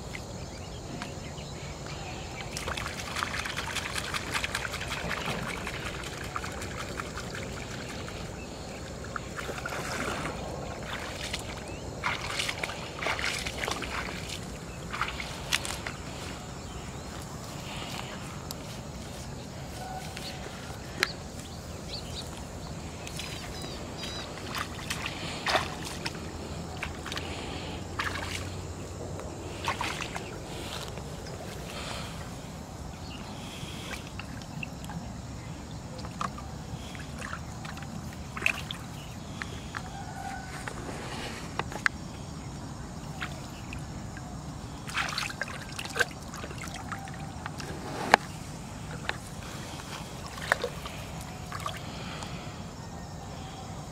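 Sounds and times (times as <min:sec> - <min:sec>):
footsteps splashing in muddy water: 0:01.8 - 0:52.3.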